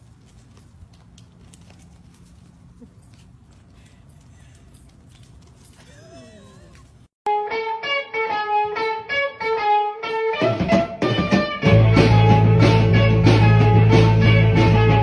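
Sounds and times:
plucked guitar riff: 7.3 - 15.0
band with heavy bass and drums: 10.4 - 15.0.

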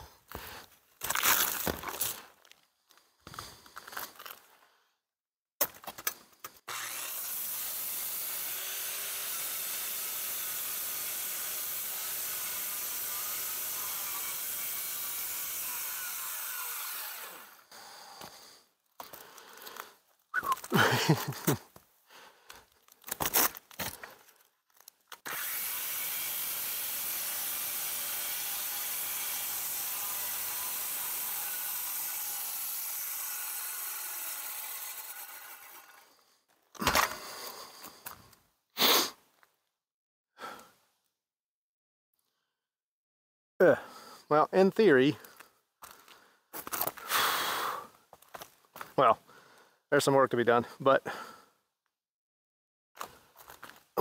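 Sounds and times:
circular saw cutting shingles: 5.6 - 21.7, 23.0 - 38.3.

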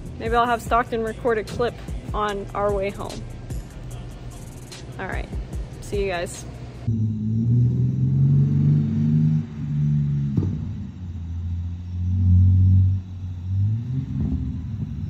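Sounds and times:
car exhaust accelerating hard: 6.8 - 15.0.

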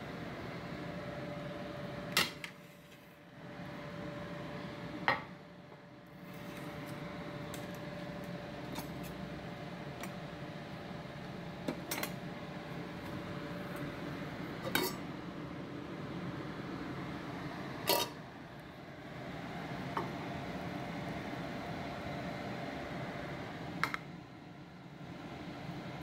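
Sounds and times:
steady hum: 0.0 - 26.0
utensils clinking on dishes: 14.6 - 15.0, 17.9 - 18.2.

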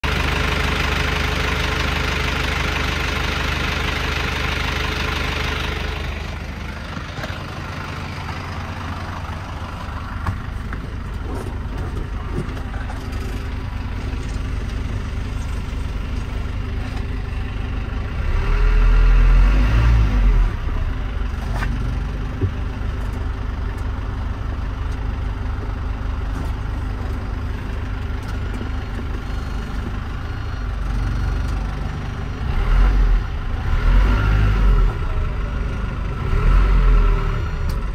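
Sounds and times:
diesel truck engine idling: 0.0 - 37.9
engine revving: 18.0 - 22.2, 32.4 - 37.9.

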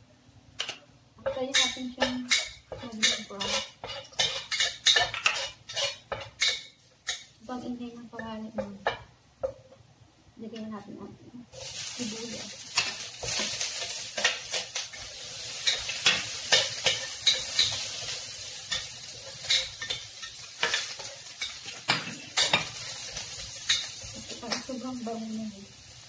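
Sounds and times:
onion sizzling in hot oil: 1.1 - 9.8, 10.6 - 26.0
metal spatula scraping a wok: 1.3 - 7.7, 11.6 - 24.8.

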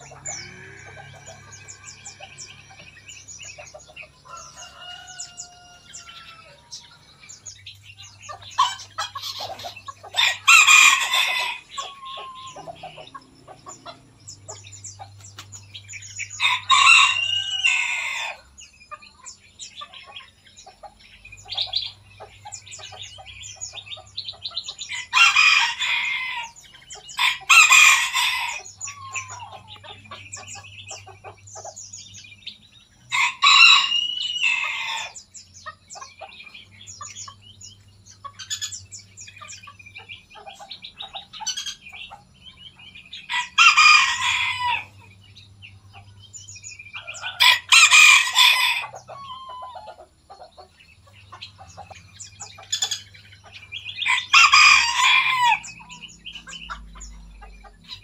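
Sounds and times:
small birds chirping: 0.0 - 58.0
rooster crowing: 4.2 - 7.0, 10.2 - 12.9, 16.3 - 18.4, 24.9 - 29.7, 33.1 - 35.2, 43.3 - 45.0, 47.1 - 49.9, 54.0 - 55.9.

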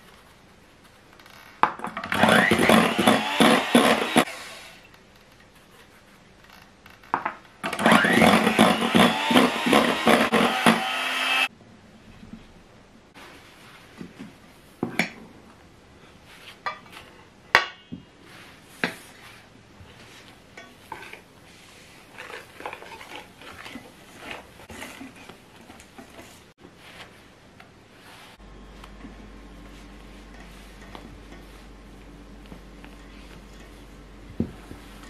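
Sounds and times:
spatula scraping batter: 18.3 - 27.1.

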